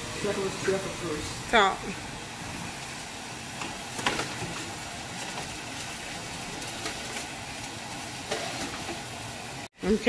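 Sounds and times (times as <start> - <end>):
steady hiss: 0.0 - 5.0.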